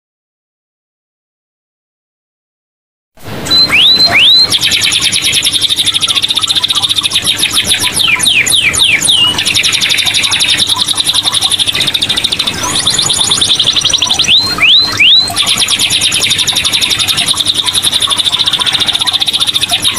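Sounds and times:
canary singing: 0:03.4 - 0:19.9.

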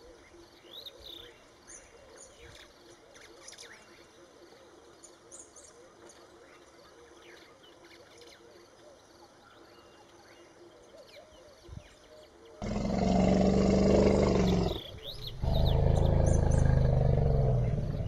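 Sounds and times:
faint bird chirps: 0:00.0 - 0:18.0
elephant roaring: 0:12.6 - 0:18.0.

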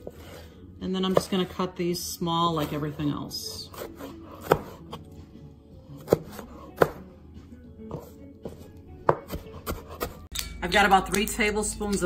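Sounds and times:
soft background music: 0:00.0 - 0:12.0
knife chopping on cutting board: 0:03.7 - 0:05.0, 0:05.9 - 0:07.1, 0:07.9 - 0:10.3.

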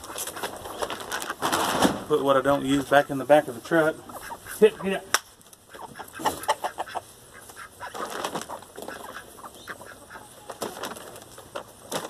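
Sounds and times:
feed bag rustling: 0:00.0 - 0:03.5, 0:07.9 - 0:09.2, 0:10.4 - 0:12.0
chickens clucking: 0:00.0 - 0:12.0.

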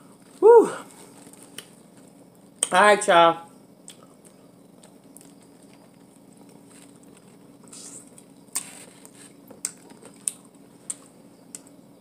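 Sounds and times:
soft rustling of food: 0:00.1 - 0:02.6, 0:04.2 - 0:11.3.

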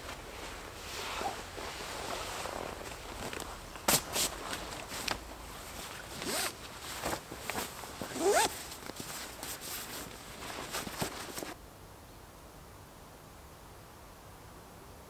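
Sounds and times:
faint steady hiss: 0:00.0 - 0:15.0
backpack zippers opening: 0:06.2 - 0:06.6, 0:08.0 - 0:08.8.

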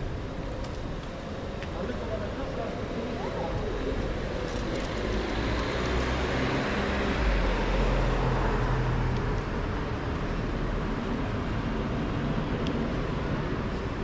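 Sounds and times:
cars driving past: 0:04.2 - 0:14.0.

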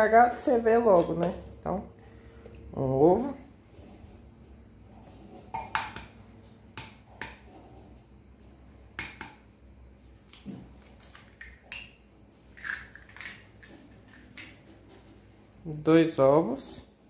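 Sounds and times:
eggs cracking: 0:05.5 - 0:06.2, 0:10.2 - 0:14.6
eggshells clicking and tapping: 0:12.5 - 0:14.6.

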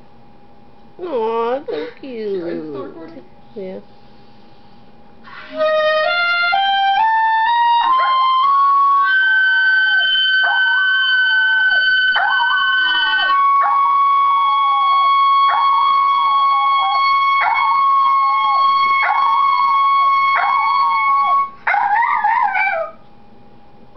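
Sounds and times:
clarinet playing high notes: 0:05.3 - 0:21.6
dog howling: 0:07.3 - 0:23.0.

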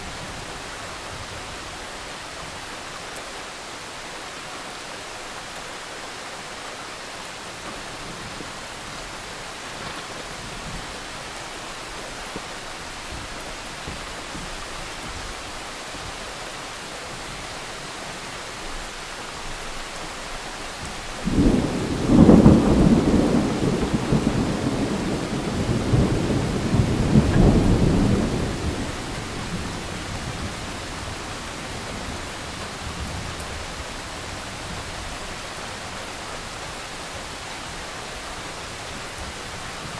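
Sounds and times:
rain falling: 0:00.0 - 0:39.9
thunder clap rolling: 0:21.2 - 0:30.6.

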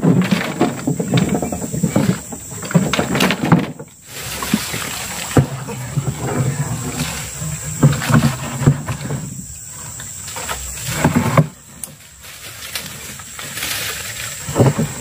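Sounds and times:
water running off: 0:04.1 - 0:07.4.

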